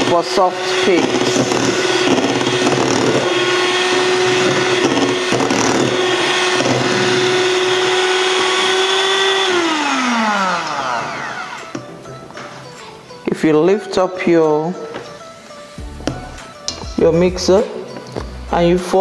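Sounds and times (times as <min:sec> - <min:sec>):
electric hand mixer whipping: 0:00.0 - 0:12.1.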